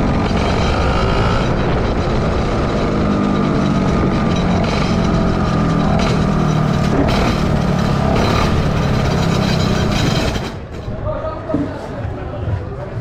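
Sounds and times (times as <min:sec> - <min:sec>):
kart engine running: 0:00.0 - 0:11.0.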